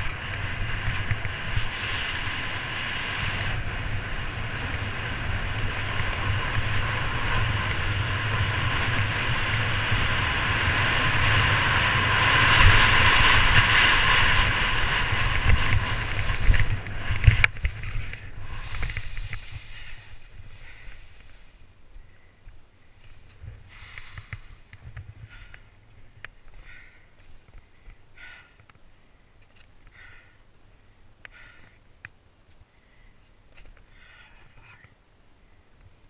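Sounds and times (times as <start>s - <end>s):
wind buffeting microphone: 0.0s - 20.7s
skis scraping over snow: 0.0s - 21.7s.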